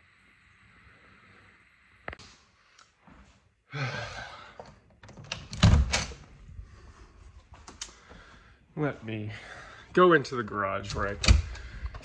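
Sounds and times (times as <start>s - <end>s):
door shutting with heavy thump: 5.5s - 6.2s
clicks: 7.6s - 8.1s.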